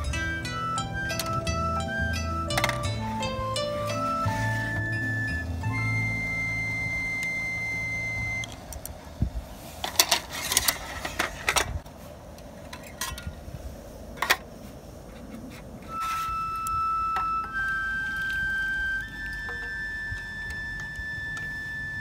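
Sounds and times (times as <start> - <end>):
soft plucked music: 0.0 - 8.5, 16.0 - 22.0.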